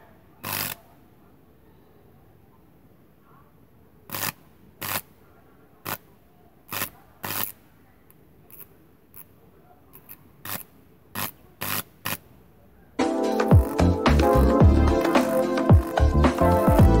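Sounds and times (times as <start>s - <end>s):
high-voltage sparks snapping: 0.4s - 0.9s, 4.1s - 5.1s, 5.8s - 6.1s, 6.7s - 7.6s, 8.5s - 12.3s, 13.6s - 16.8s.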